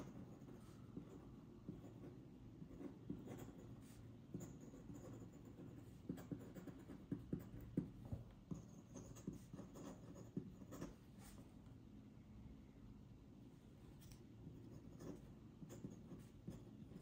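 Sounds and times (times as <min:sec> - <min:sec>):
pen nib scratching on paper: 0:00.0 - 0:07.9, 0:08.5 - 0:11.0, 0:14.5 - 0:17.0.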